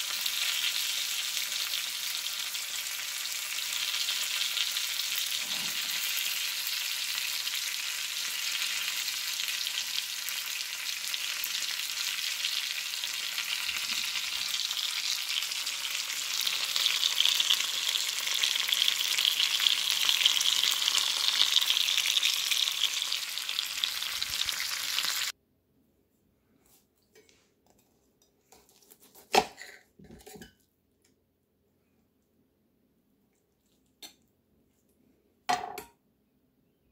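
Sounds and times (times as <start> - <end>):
steak sizzling in frying pan: 0.0 - 25.3.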